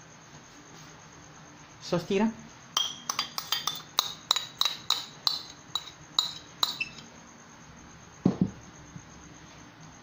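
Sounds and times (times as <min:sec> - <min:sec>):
metal spoon clinking on plate: 0:02.8 - 0:07.1.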